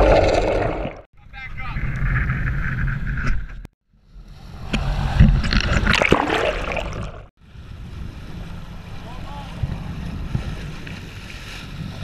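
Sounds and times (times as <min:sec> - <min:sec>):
water churning and bubbling: 0:00.0 - 0:01.1, 0:04.5 - 0:07.3
wind and sea noise: 0:00.0 - 0:12.0.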